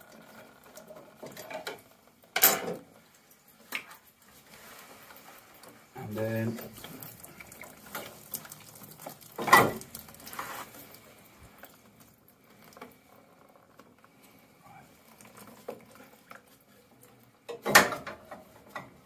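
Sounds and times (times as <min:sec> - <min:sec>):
boiler parts knocking and clattering: 0:17.5 - 0:19.0.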